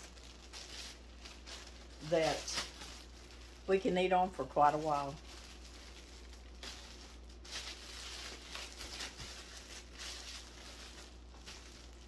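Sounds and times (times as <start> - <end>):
faint hum: 0.0 - 12.0
plastic bag crinkling: 0.0 - 12.0.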